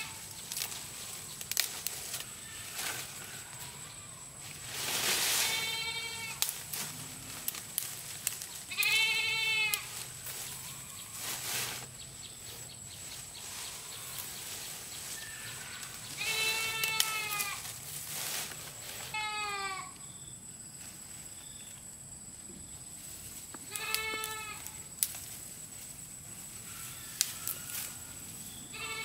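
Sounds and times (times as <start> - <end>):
leafy branches rustling: 0.0 - 19.9, 22.9 - 29.0
goat bleating: 5.4 - 6.4, 8.7 - 10.0, 16.2 - 17.6, 19.1 - 20.0, 23.7 - 24.7, 28.7 - 29.0.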